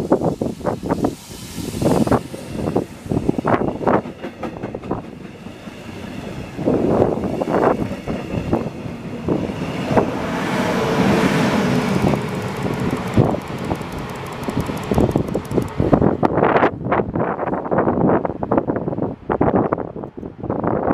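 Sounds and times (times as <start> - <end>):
train rushing noise: 0.0 - 20.9
train wheels knocking on rail joints: 3.8 - 5.7, 12.0 - 15.9.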